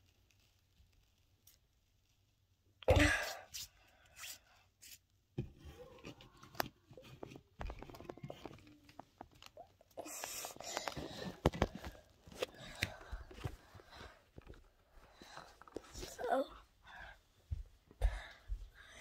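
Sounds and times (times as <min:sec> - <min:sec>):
phone rustling against clothing: 0:10.2 - 0:16.1.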